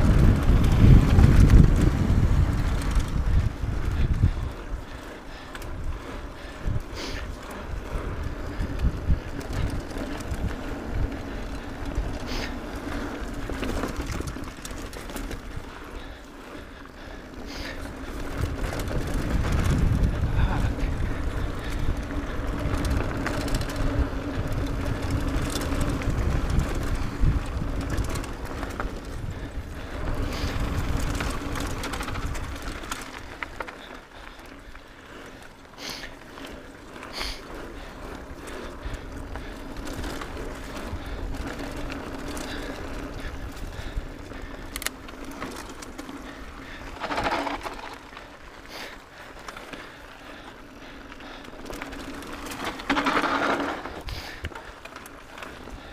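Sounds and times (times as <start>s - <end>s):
wind on microphone: 0.0s - 5.0s, 5.7s - 12.3s, 18.2s - 32.9s
bike tyres rumbling on dirt: 0.0s - 55.9s
bike clicks and knocks: 17.4s - 34.7s, 35.8s - 50.0s, 51.1s - 55.9s.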